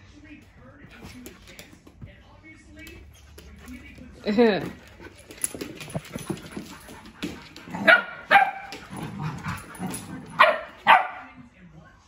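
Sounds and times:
dogs barking: 6.3 - 11.4.

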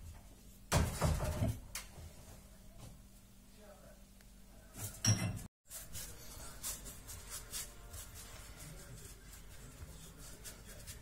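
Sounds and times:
hands rolling dough on countertop: 5.7 - 11.0.

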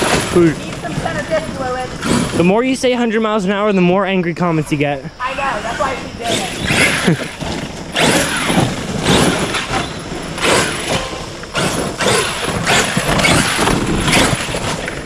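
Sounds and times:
electric motor whining: 5.3 - 15.0.

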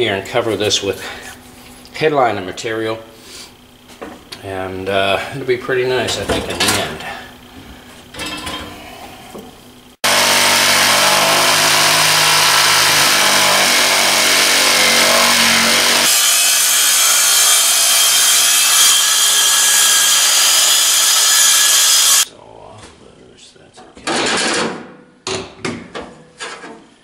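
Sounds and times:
circular saw cutting wood: 10.0 - 22.3
jigsaw cutting wood: 10.0 - 22.3.

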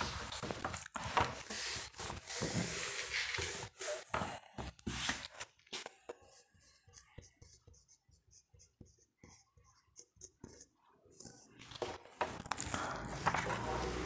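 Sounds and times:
handwriting scratching: 6.1 - 11.6.

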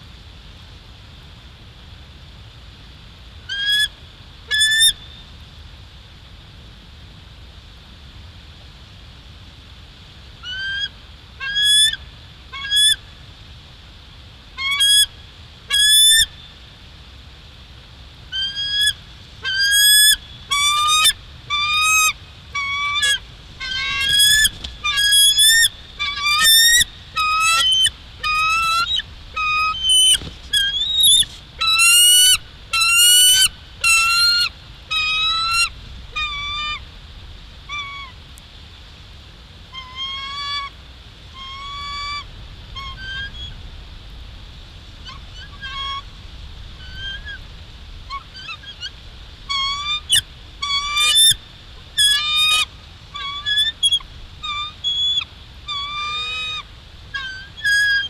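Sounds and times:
eagles chirping: 19.4 - 36.7.

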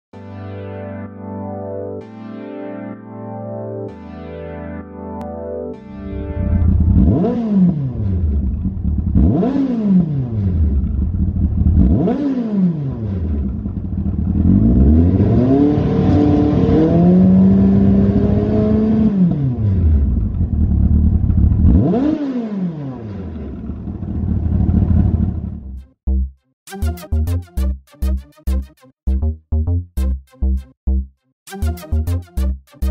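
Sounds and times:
motorcycle engine revving: 6.2 - 25.8
motorcycle engine idling: 8.2 - 9.2, 10.8 - 11.8, 13.4 - 14.4, 23.6 - 25.7.

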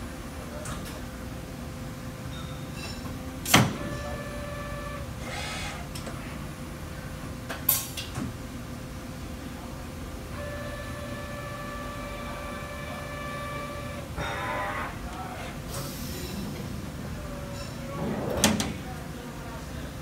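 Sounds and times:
machining center humming: 0.0 - 20.0
axis drive whine: 3.5 - 6.2, 10.3 - 15.3.

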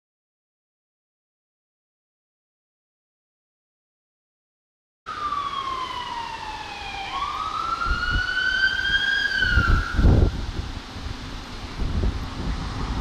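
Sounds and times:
electronic wail siren: 5.1 - 10.5
wind buffeting microphone: 6.9 - 13.0.

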